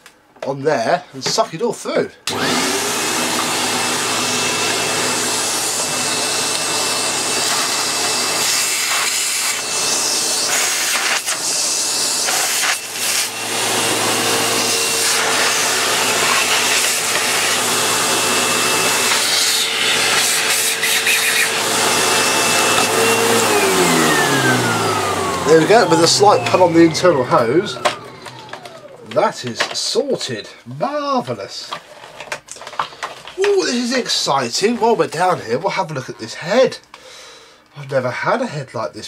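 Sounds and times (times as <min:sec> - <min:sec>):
vacuum cleaner running: 0:02.3 - 0:30.2.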